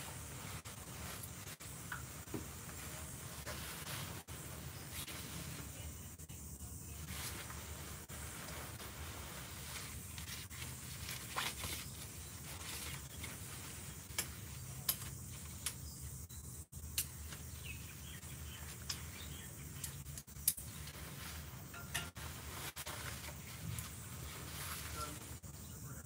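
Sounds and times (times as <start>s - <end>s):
camping gear rustling: 0.0s - 16.2s, 17.1s - 25.7s
steady low hum: 0.0s - 26.0s
sharp clicks: 16.8s - 17.4s.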